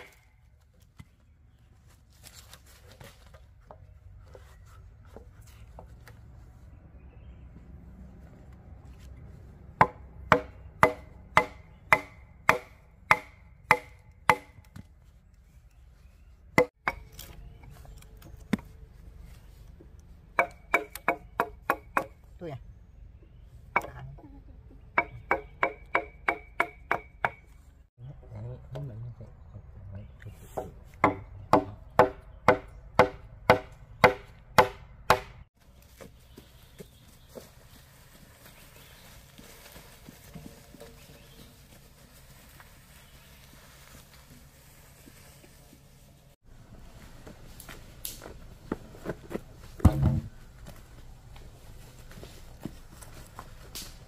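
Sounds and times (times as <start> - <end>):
machete chopping wooden log: 9.8 - 14.9, 20.4 - 22.2, 25.0 - 27.4, 30.6 - 35.4.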